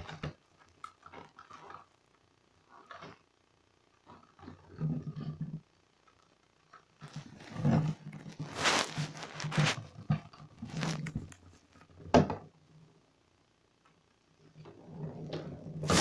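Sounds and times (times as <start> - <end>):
plastic ball rolling in bathtub: 4.0 - 5.7, 6.9 - 12.6, 14.5 - 16.0.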